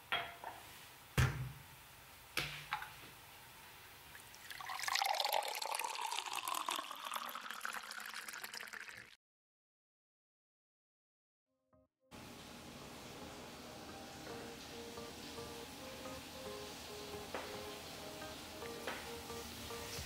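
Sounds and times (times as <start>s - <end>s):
water pouring into glass: 4.2s - 9.2s.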